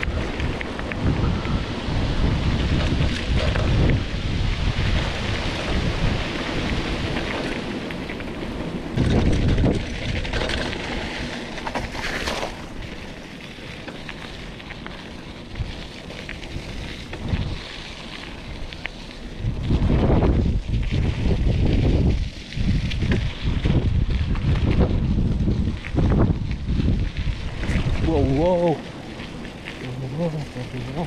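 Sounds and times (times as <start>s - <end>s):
bike tyres rolling over wet gravel: 0.0s - 31.0s
wind noise on microphone: 0.0s - 31.0s
bike splashing through puddle: 9.0s - 31.0s.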